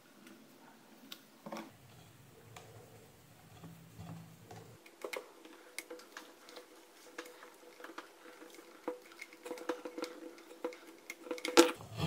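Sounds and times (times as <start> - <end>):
plastic parts knocking: 2.5 - 11.8.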